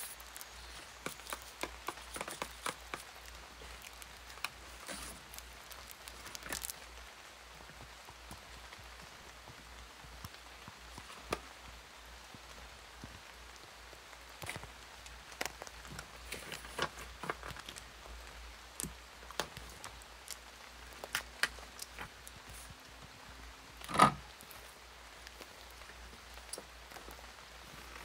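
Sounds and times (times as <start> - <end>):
paper crinkling: 0.0 - 7.0, 14.3 - 22.8.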